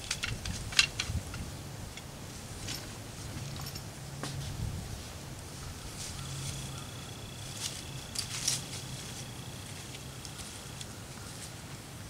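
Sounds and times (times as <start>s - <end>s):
short rustles and clicks: 0.0s - 4.6s, 7.5s - 10.9s
thin steady high whine: 0.0s - 12.0s.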